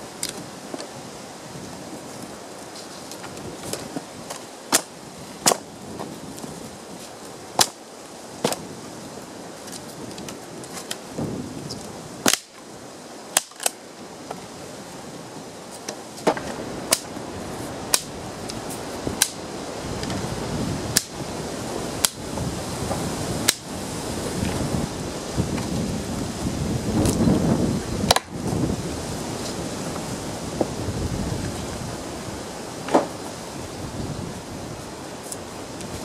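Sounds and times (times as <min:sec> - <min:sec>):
twigs and leaves rustling: 0:00.0 - 0:36.0
sticks snapping: 0:03.0 - 0:05.6, 0:07.6 - 0:07.8, 0:12.2 - 0:12.6, 0:13.4 - 0:13.8, 0:15.9 - 0:17.1, 0:17.9 - 0:18.6, 0:19.2 - 0:19.4, 0:20.9 - 0:21.1, 0:28.1 - 0:28.3.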